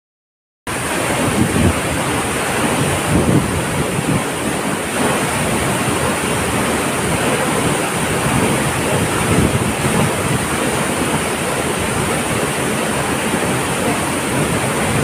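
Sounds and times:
wind rumbling on microphone: 0.7s - 15.0s.

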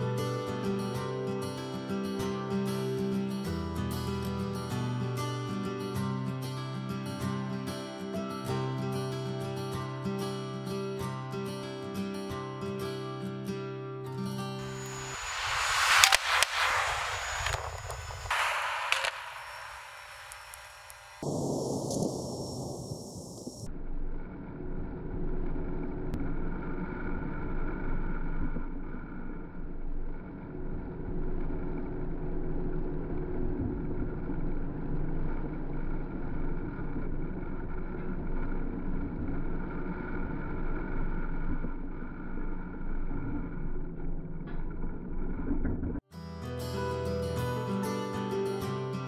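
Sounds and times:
motor droning: 14.6s - 46.0s.

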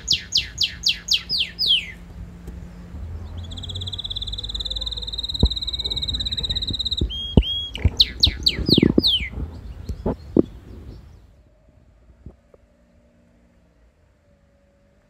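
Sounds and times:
canary singing: 0.0s - 11.4s.

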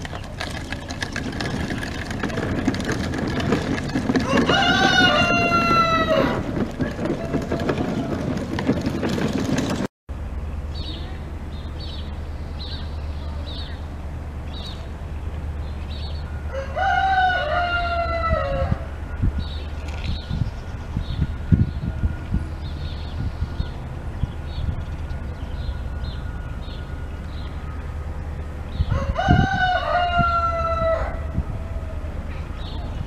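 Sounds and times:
rooster crowing: 4.2s - 6.5s, 16.5s - 19.0s, 28.9s - 32.2s
small birds chirping: 10.7s - 16.3s.

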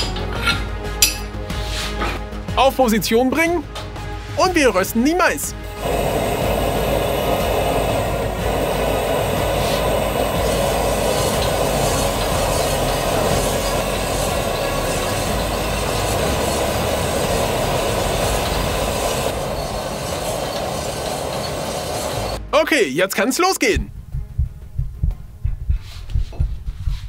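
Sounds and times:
gas burner flame roaring: 5.6s - 22.4s.

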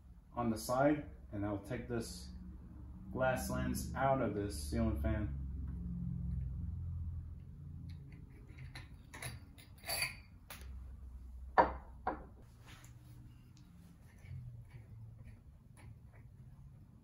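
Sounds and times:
glass light shade clinking: 8.4s - 10.7s.

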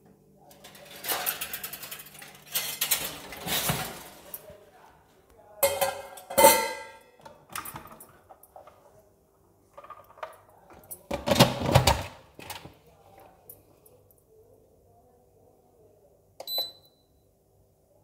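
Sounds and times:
metal vessel clinking against steel pot: 5.6s - 7.0s.

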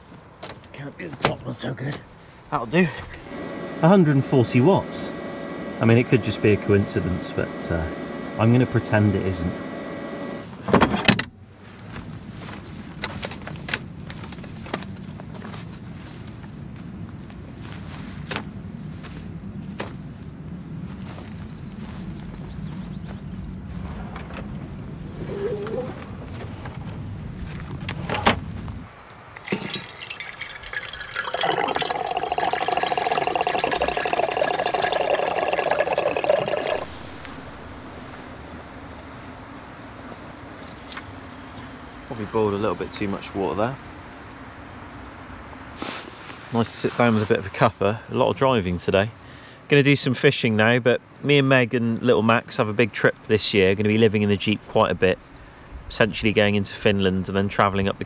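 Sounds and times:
steady low background noise: 26.0s - 58.0s
water pouring into metal mug: 29.4s - 37.8s.

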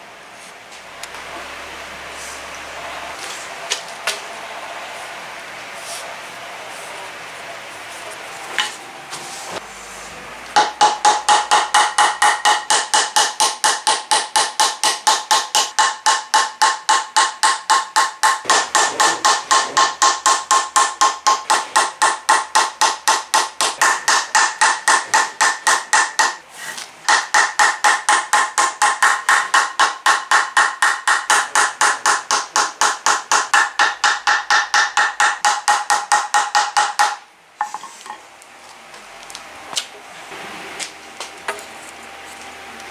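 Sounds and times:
hammer striking wooden block: 10.6s - 26.4s, 27.0s - 37.8s.

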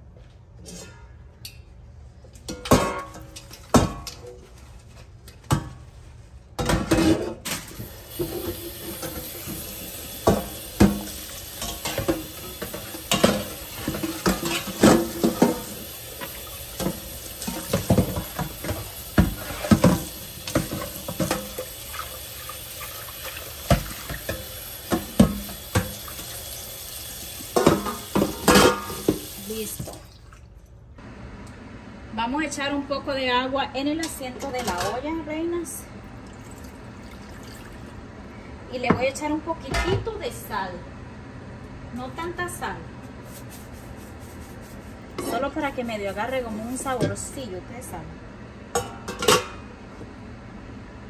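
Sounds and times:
metal clanks against sink: 2.4s - 4.3s, 27.5s - 29.3s
tap water running into sink: 7.8s - 30.4s, 36.3s - 37.9s
pot being scrubbed: 8.1s - 26.5s, 43.2s - 47.3s.

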